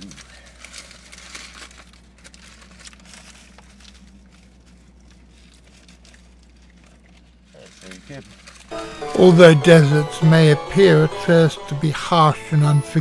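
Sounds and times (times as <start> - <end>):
paper wrapper crinkling: 0.0 - 8.7.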